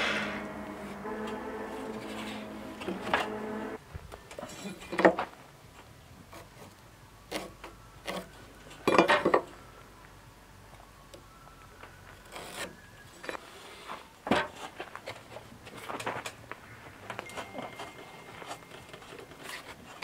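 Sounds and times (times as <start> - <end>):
miter saw coasting down: 0.0 - 3.8.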